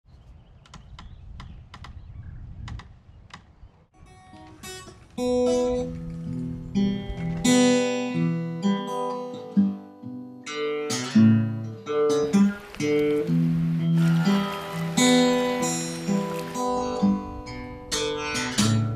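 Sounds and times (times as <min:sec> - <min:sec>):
acoustic guitar music: 0:04.0 - 0:18.9.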